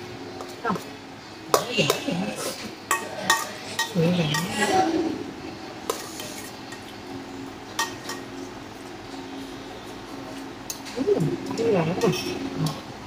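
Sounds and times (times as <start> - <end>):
metal spoon clinking on basin: 2.9 - 4.6.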